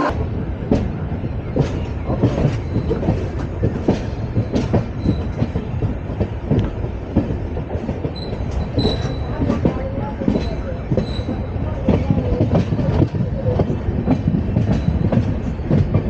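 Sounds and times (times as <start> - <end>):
train rumbling on rails: 0.0 - 16.0
wheels clacking over rail joints: 0.6 - 16.0.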